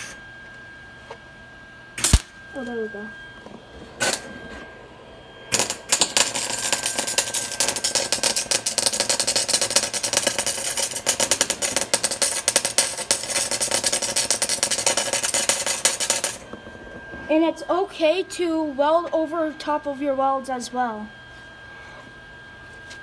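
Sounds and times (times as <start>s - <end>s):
welding arc crackling: 2.0s - 4.4s, 5.5s - 19.8s.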